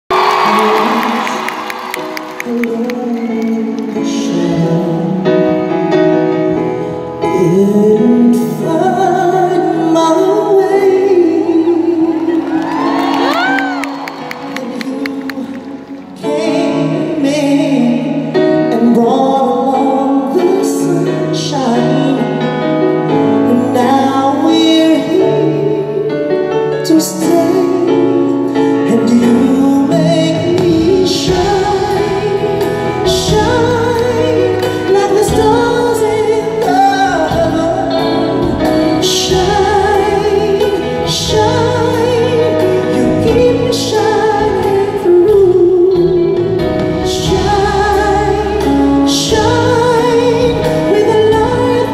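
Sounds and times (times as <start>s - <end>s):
band accompaniment: 0.1s - 51.9s
person singing with vibrato: 0.1s - 51.9s.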